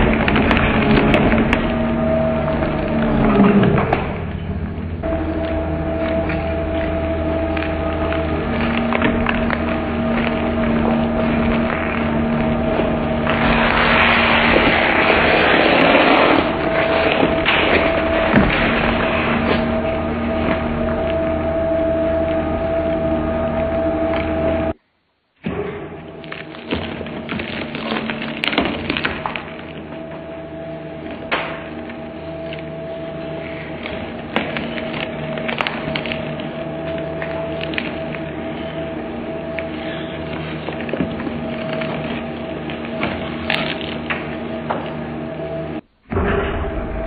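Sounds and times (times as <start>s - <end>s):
shoe cracking and crunching: 0.0s - 19.8s, 26.2s - 30.2s, 33.3s - 38.9s
sharp crack: 0.0s - 21.4s
shredder grinding and ripping: 0.0s - 24.8s, 25.5s - 45.8s
shredder machine hum: 0.0s - 24.8s, 25.5s - 47.0s.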